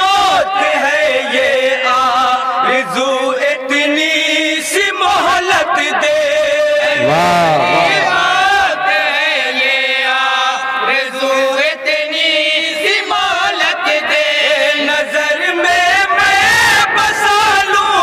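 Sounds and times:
men's chorus singing devotional song: 0.0 - 18.0.

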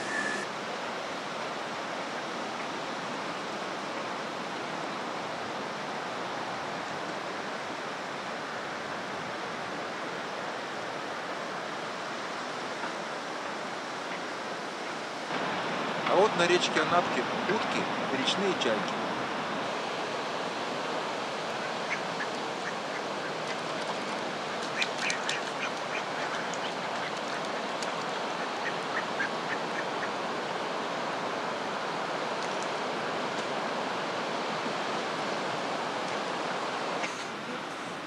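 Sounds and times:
steady rushing background noise: 10.7 - 38.0.

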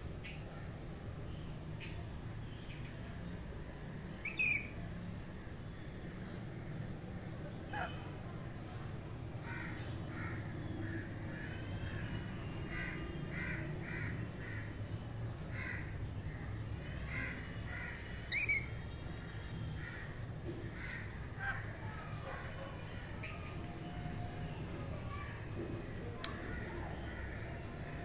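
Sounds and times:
parrots calling: 17.1 - 19.0
parrot shrieking: 18.3 - 18.8.

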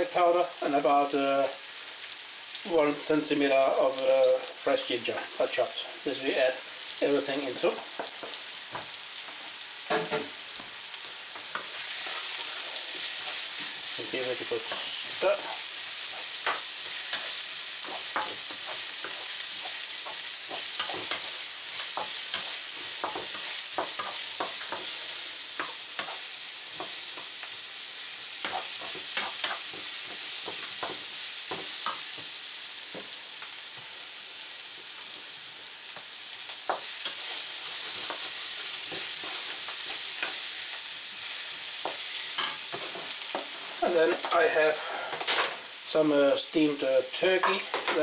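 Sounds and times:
vegetables sizzling in oil: 0.0 - 48.0
wooden spatula scraping pan: 11.4 - 26.9.

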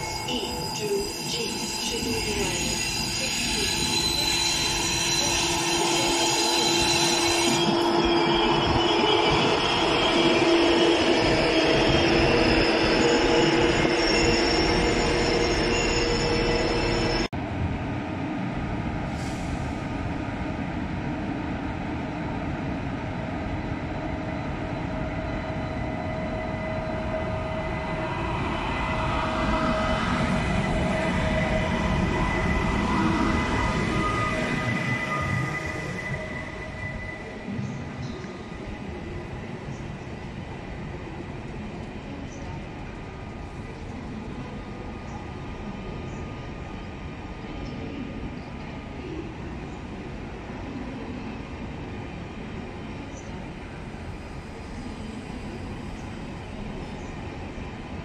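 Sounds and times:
train wheels squealing: 0.0 - 17.3, 23.6 - 40.4
electric train running hum: 0.0 - 19.2, 19.9 - 58.0.

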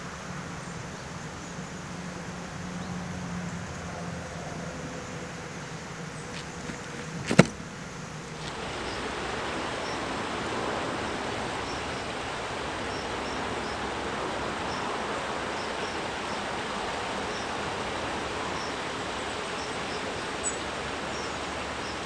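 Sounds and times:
rushing outdoor noise: 0.0 - 22.0
small birds chirping: 6.0 - 9.0
sharp knock: 7.2 - 7.6.

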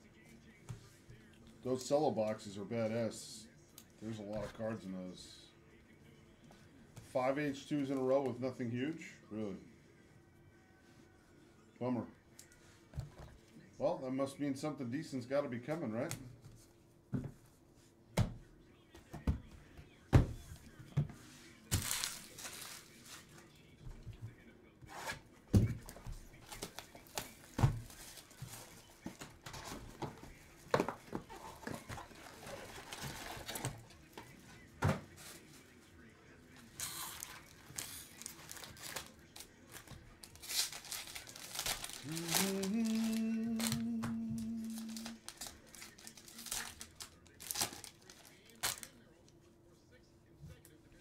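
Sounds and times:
cellophane crinkling and tearing: 21.7 - 23.2, 36.8 - 49.0.

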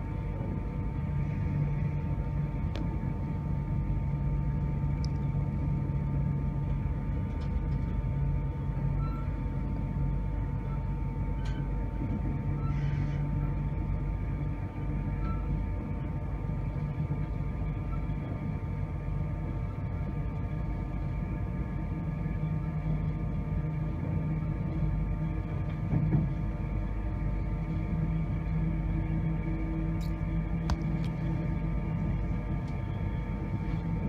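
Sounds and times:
train wheels rumbling on track: 21.5 - 34.0
thin steady hum: 26.5 - 34.0.

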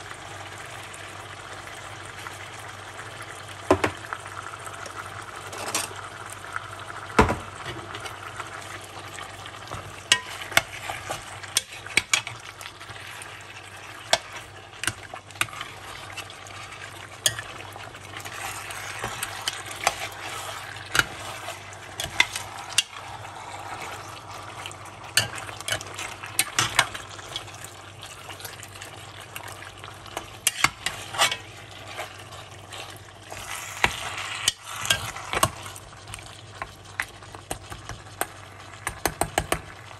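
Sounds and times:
meat frying with a sizzle: 0.0 - 39.9
spoon scraping a pot: 9.7 - 17.6, 18.2 - 24.4, 30.1 - 35.7.

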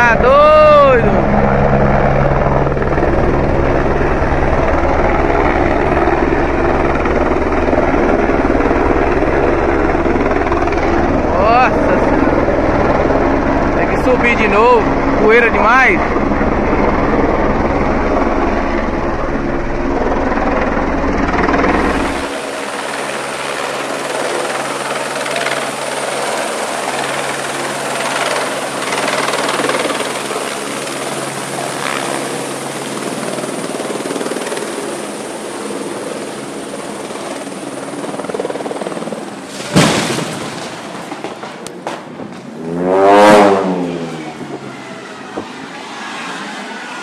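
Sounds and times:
high turbine whine: 0.0 - 47.0
rotor downwash rush: 10.0 - 16.7, 42.5 - 47.0.

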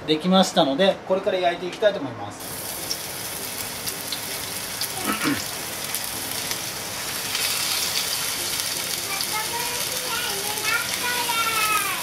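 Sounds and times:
meat sizzling in a frying pan: 2.4 - 12.0.

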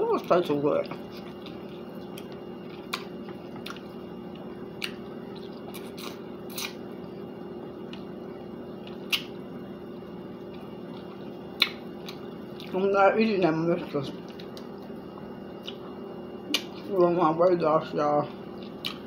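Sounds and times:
low steady hum: 0.0 - 19.0
person chewing chicken wing: 0.8 - 6.9, 10.3 - 12.7.

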